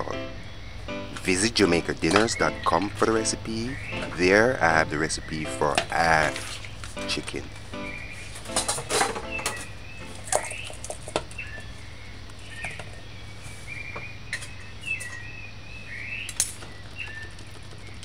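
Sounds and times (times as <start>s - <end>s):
small birds chirping: 0.0s - 18.0s
sharp clicks and knocks: 2.0s - 2.9s, 8.4s - 11.4s.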